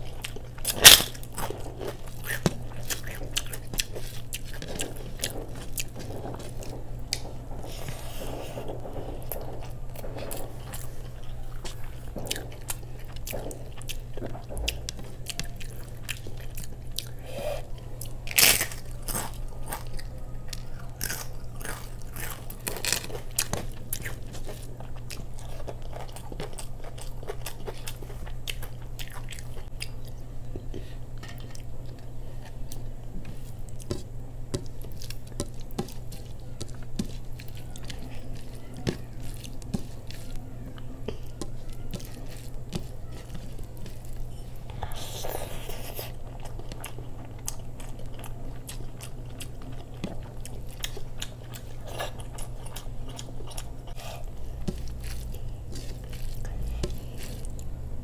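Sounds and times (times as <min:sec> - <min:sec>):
chewing crisp food: 0:00.0 - 0:58.0
loud sharp crunches: 0:00.2 - 0:17.1, 0:18.3 - 0:28.2.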